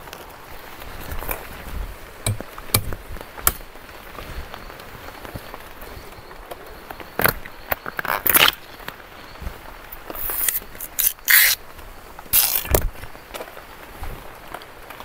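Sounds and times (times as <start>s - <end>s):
machete splitting palm stalk: 2.2s - 3.7s, 10.3s - 11.6s, 12.3s - 12.9s.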